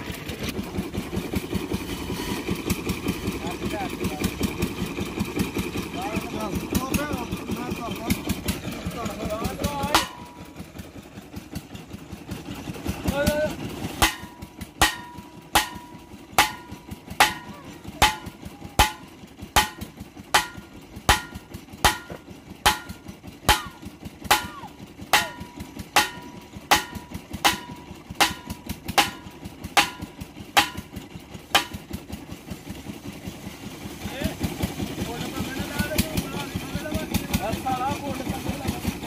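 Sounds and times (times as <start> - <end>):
engine running: 0.0 - 39.0
steel pipe clanking: 6.2 - 10.8, 12.5 - 32.6.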